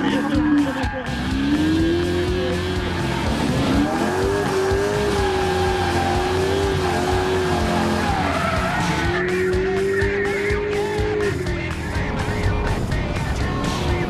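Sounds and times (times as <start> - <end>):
tyres squealing: 0.0 - 11.4
car engine revving high: 0.0 - 12.9.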